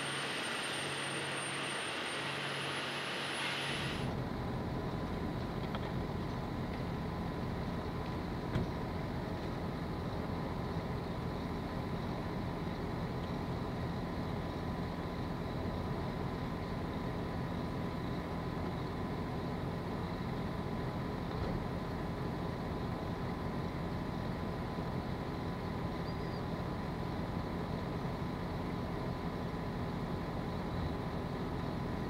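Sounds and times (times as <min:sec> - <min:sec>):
faint high whine: 0:00.0 - 0:04.6, 0:24.2 - 0:32.0
low hum of distant machinery: 0:00.0 - 0:32.0.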